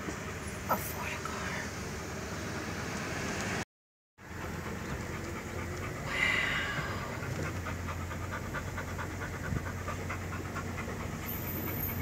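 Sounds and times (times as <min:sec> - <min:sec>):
engine and road hum: 0:00.0 - 0:12.0
dog panting: 0:04.2 - 0:12.0.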